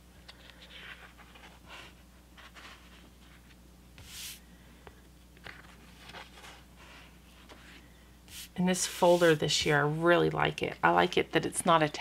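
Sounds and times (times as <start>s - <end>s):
paper pages rustling: 0.3s - 4.4s, 5.4s - 9.8s.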